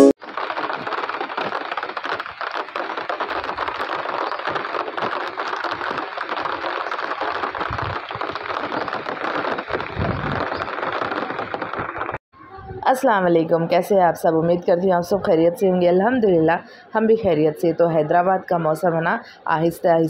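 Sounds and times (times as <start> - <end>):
steady rain pattering: 0.2 - 12.2
wind rumble on microphone: 0.2 - 12.9.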